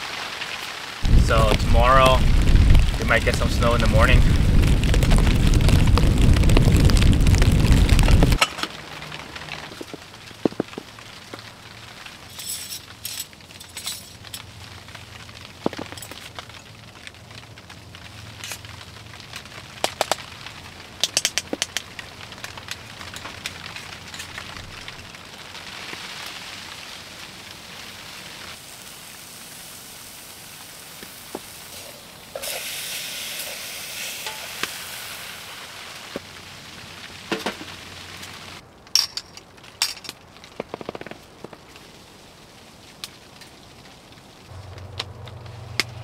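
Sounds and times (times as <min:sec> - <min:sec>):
food sizzling: 0:00.0 - 0:13.5, 0:21.7 - 0:38.6
fire crackling and popping: 0:00.0 - 0:46.0
fire hissing: 0:00.8 - 0:38.6.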